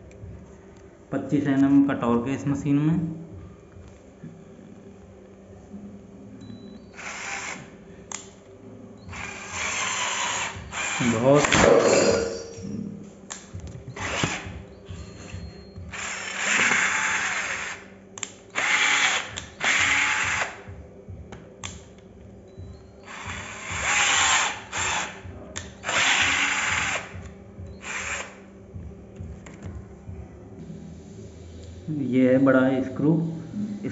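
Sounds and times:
cordless drill whirring: 0:07.0 - 0:07.7, 0:09.1 - 0:11.5, 0:13.9 - 0:17.9, 0:18.6 - 0:20.6, 0:23.0 - 0:28.4.

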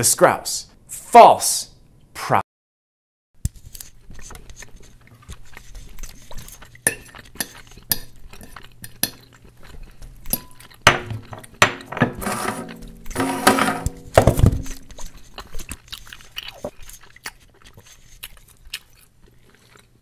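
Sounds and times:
cutlery clinking and scraping on plate: 0:10.3 - 0:14.8.

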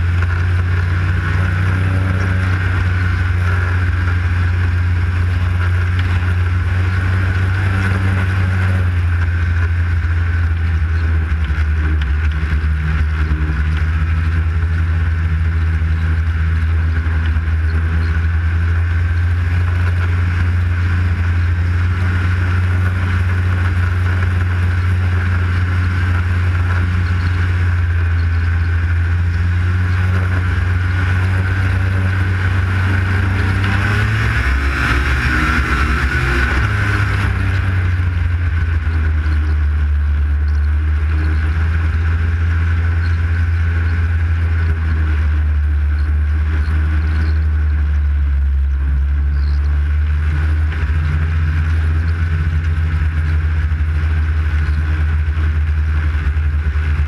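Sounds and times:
snowmobile engine running: 0:00.0 - 0:57.0.

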